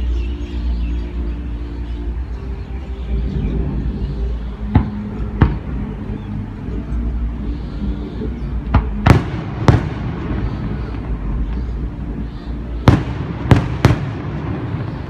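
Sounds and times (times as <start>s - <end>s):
low background rumble: 0.0s - 15.0s
fireworks bursting: 8.7s - 11.3s, 12.8s - 15.0s.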